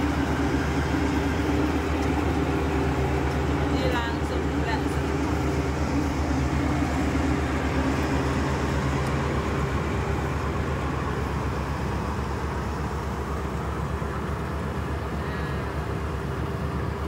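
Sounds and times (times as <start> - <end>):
combine harvester engine drone: 0.0 - 17.0.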